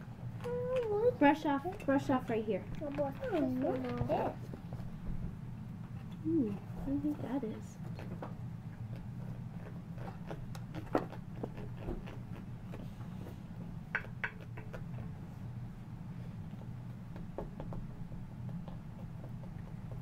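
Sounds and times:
steady low hum: 0:00.0 - 0:20.0
tools tapping and scraping plaster: 0:13.9 - 0:15.1, 0:16.6 - 0:20.0.

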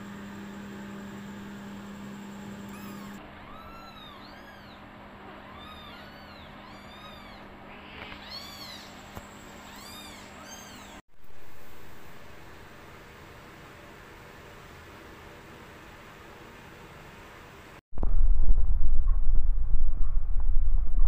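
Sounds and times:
kittens mewing: 0:02.7 - 0:09.1, 0:09.7 - 0:11.0.

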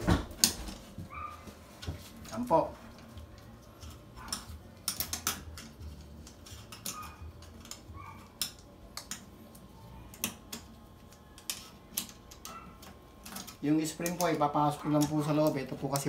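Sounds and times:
screwdriver clicking on metal ring: 0:10.1 - 0:16.0.

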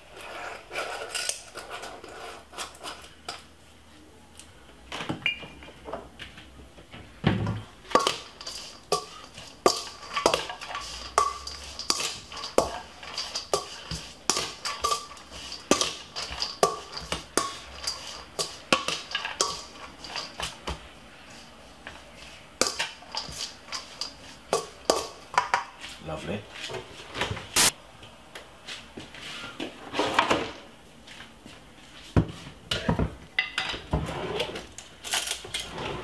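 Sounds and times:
metal spoon clinking in steel bowl: 0:07.9 - 0:20.5, 0:22.6 - 0:25.6.

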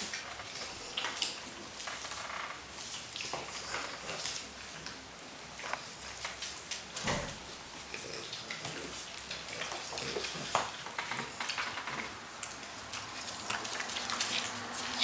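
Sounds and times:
dog claws clicking on wood floor: 0:08.3 - 0:15.0.

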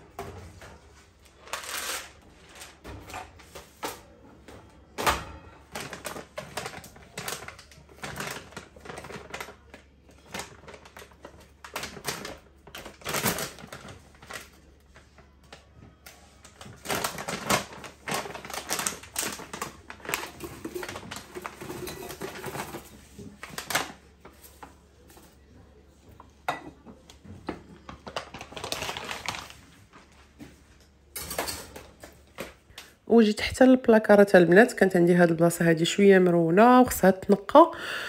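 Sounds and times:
plastic containers clicking and knocking: 0:05.0 - 0:09.6, 0:16.6 - 0:24.0.

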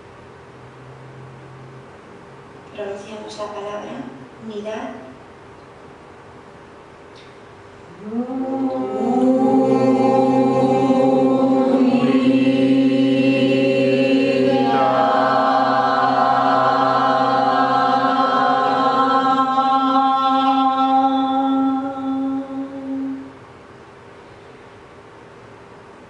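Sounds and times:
group chanting a long note: 0:07.9 - 0:23.3.

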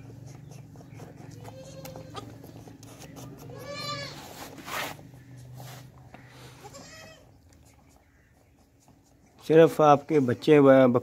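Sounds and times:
goats bleating: 0:00.8 - 0:02.8, 0:03.4 - 0:04.4, 0:06.3 - 0:07.4.

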